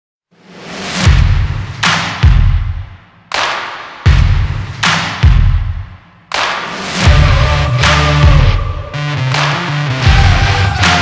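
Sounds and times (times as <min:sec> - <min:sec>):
deep drum-like hits: 0:01.0 - 0:03.0, 0:04.1 - 0:06.0, 0:06.9 - 0:08.6.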